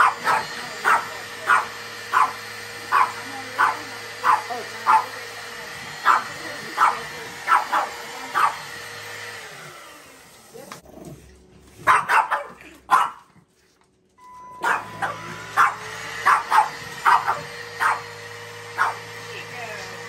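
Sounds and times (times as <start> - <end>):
small dog barking: 0.0 - 5.2, 5.9 - 8.7, 11.8 - 13.4, 14.6 - 19.1
vacuum motor hum: 0.0 - 12.0, 14.2 - 20.0.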